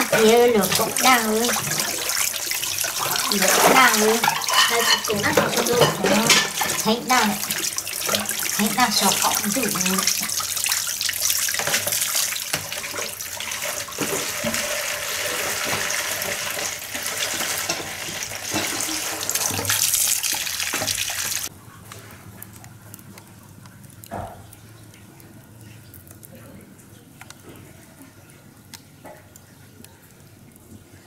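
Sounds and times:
water splashing on concrete: 0:00.0 - 0:21.5.

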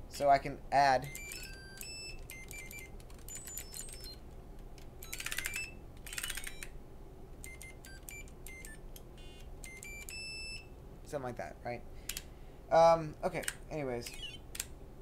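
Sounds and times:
high electronic beeps: 0:01.1 - 0:04.2.

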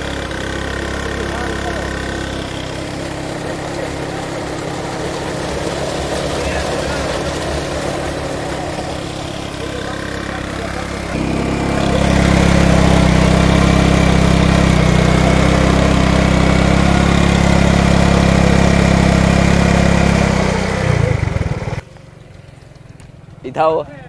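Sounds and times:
small motorcycle engine running: 0:00.0 - 0:24.0.

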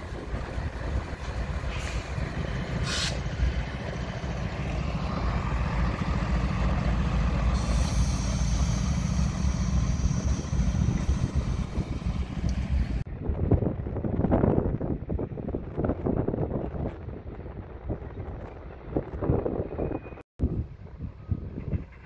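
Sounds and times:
freight train rumbling past: 0:00.0 - 0:22.0
short hiss: 0:02.8 - 0:03.3.

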